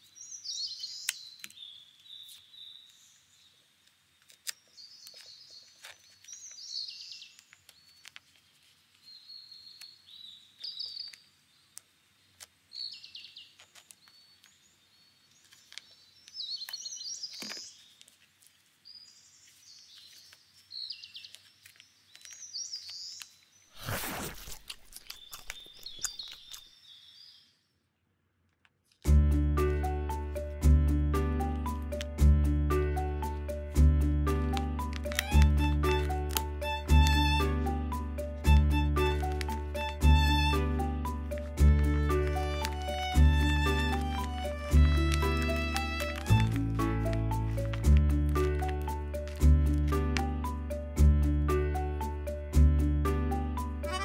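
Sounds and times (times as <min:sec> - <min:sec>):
tape-covered paper crinkling: 0:04.2 - 0:09.9, 0:13.5 - 0:14.6, 0:15.3 - 0:26.7, 0:39.0 - 0:40.0, 0:42.1 - 0:50.0
birds chirping: 0:18.9 - 0:28.1.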